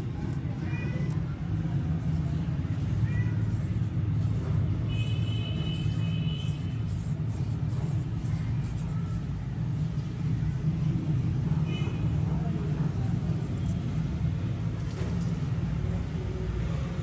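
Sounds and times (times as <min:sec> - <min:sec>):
low outdoor rumble: 0:00.0 - 0:16.5.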